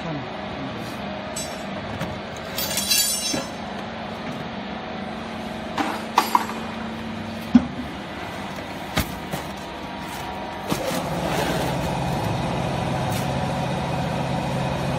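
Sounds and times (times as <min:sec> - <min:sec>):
hydraulic pump humming: 0:00.0 - 0:14.9
metallic rattle: 0:02.5 - 0:03.6.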